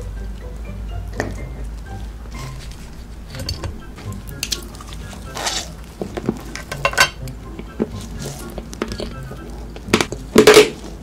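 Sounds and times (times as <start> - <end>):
gloved hand rustling: 1.6 - 11.0.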